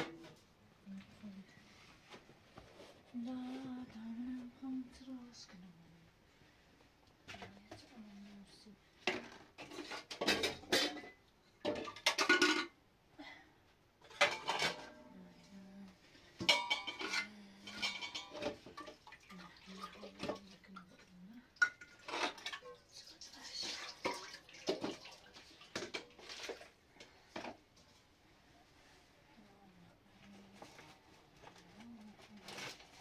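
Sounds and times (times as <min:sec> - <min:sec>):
dishes and utensils clattering: 0:09.1 - 0:12.8, 0:14.0 - 0:15.1, 0:16.3 - 0:20.5, 0:21.6 - 0:22.8, 0:23.7 - 0:27.6.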